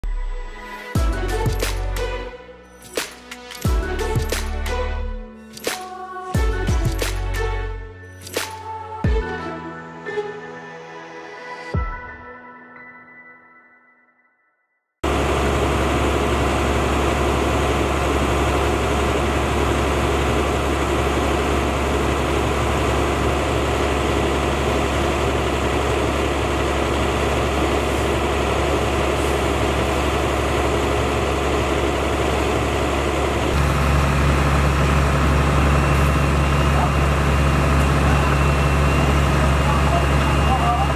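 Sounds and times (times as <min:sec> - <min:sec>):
diesel engine idling: 0:15.0 - 0:40.9.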